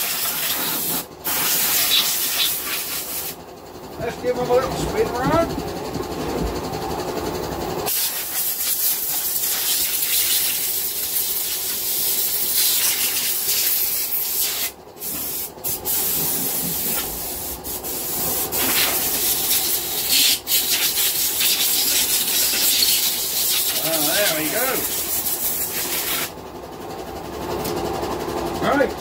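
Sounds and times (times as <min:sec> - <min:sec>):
compressed air blow gun hissing: 0:00.0 - 0:03.4, 0:07.9 - 0:26.3.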